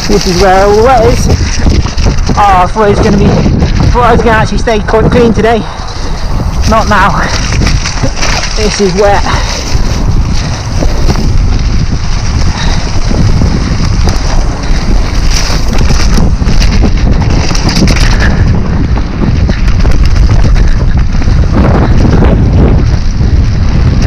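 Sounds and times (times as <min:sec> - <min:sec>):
bike rattling clicks: 0:00.0 - 0:04.0, 0:05.7 - 0:24.0
tyres rumbling on dirt: 0:00.0 - 0:24.0
wind buffeting microphone: 0:00.0 - 0:24.0.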